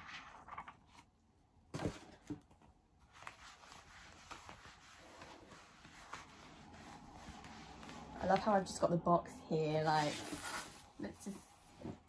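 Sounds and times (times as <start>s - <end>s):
mitt rubbing on skin: 3.2s - 8.6s.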